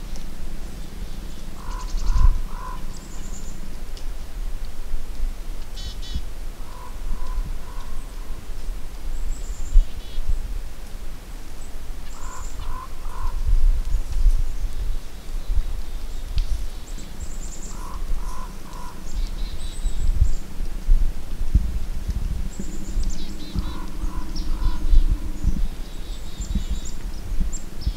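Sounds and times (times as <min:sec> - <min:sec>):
birds calling low notes: 0:00.0 - 0:04.8, 0:05.7 - 0:10.5, 0:11.6 - 0:27.9
low rumble: 0:13.0 - 0:27.9.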